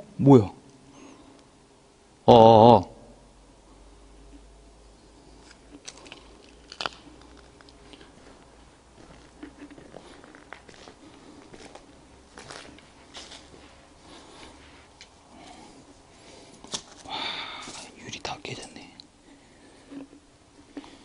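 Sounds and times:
footsteps crunching on dry leaves: 9.0s - 14.6s.

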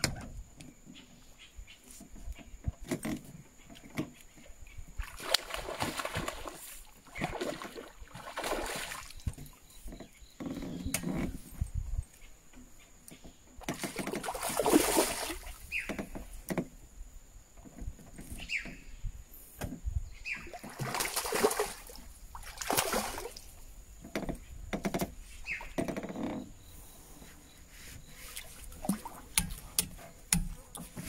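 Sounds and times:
fish thrashing water splashing: 5.0s - 9.2s, 13.7s - 15.6s, 20.5s - 23.6s.

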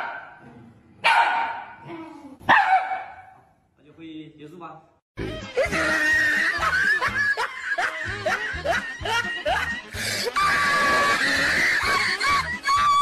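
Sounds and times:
upbeat background music: 5.2s - 13.0s
snickering laughter: 5.6s - 12.8s.

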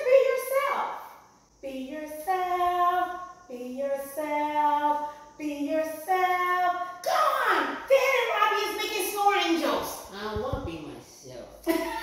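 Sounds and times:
woman singing wordless melody: 1.6s - 7.0s.

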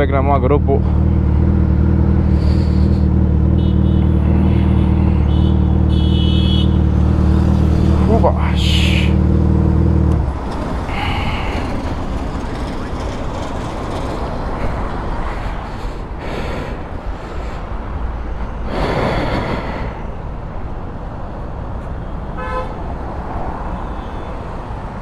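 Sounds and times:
roadside traffic noise: 0.0s - 25.0s
vehicle horn honk: 3.5s - 6.8s, 22.4s - 22.8s.

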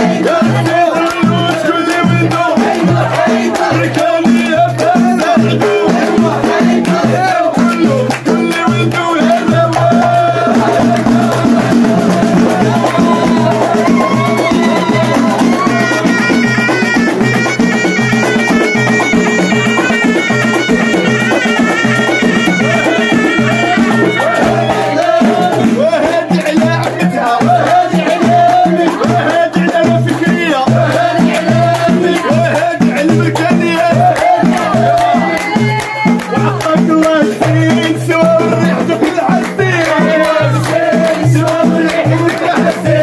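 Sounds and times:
frame drums and hand drums: 0.0s - 43.0s
group singing: 0.0s - 43.0s
reed pipe melody: 13.4s - 25.2s.

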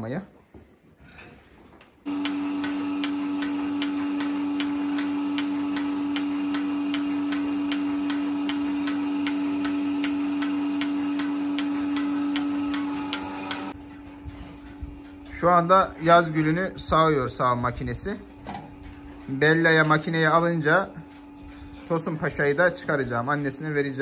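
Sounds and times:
vacuum pump motor humming: 2.1s - 13.8s
milking pulsator clicking: 2.1s - 22.1s.

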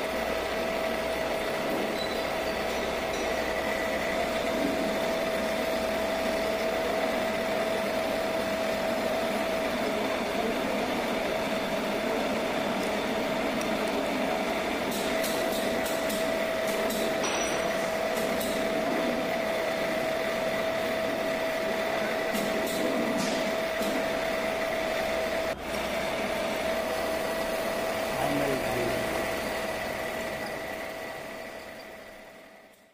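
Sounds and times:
motor hum: 0.0s - 32.9s
drilling machine cutting metal: 19.4s - 32.6s.

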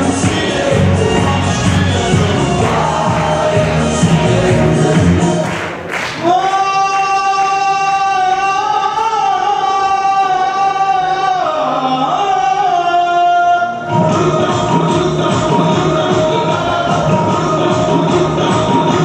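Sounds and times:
dance music: 0.0s - 19.0s.

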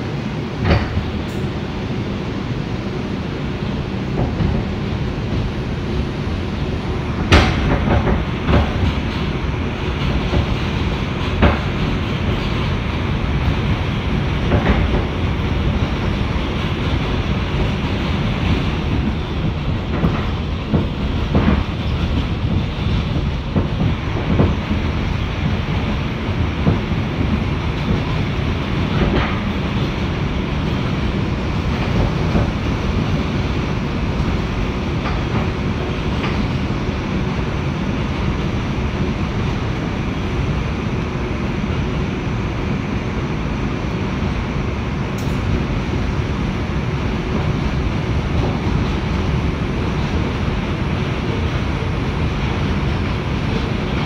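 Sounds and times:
train wheels rumbling: 0.0s - 54.0s
wheels clacking over rail joints: 6.7s - 37.4s.

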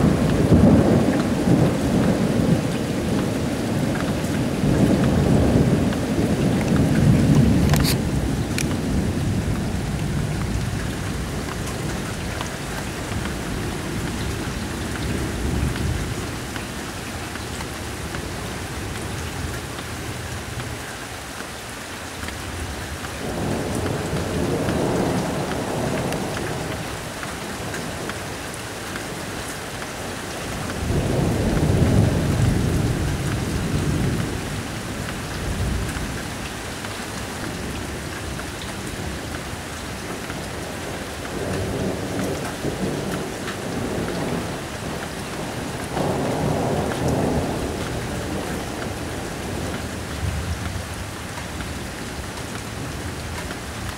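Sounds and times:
thunder rumbling: 0.0s - 16.6s, 30.4s - 36.3s, 40.3s - 51.1s
steady rain falling: 0.0s - 53.9s.

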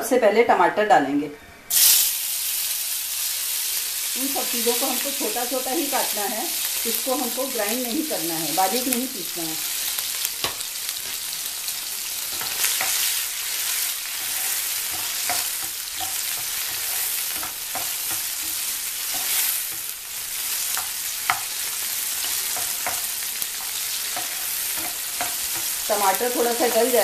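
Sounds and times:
tomatoes sizzling in oil: 1.7s - 27.0s
spatula scraping and clicking on pan: 12.3s - 25.9s.

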